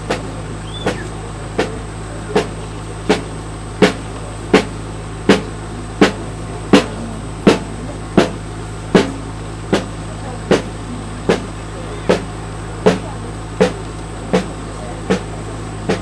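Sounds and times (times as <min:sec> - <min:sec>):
marching drum beating: 0:00.0 - 0:16.0.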